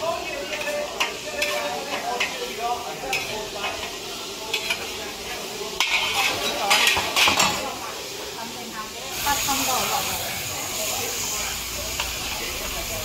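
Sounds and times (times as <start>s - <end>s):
frying sizzle: 0.0s - 13.0s
utensils clinking on metal bowls: 0.2s - 5.0s, 5.8s - 7.9s.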